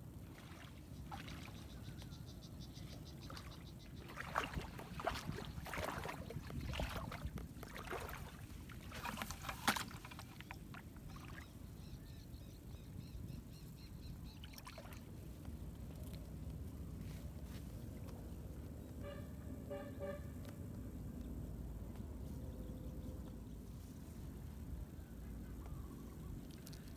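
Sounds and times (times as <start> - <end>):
wading through shallow water: 0.0 - 20.5.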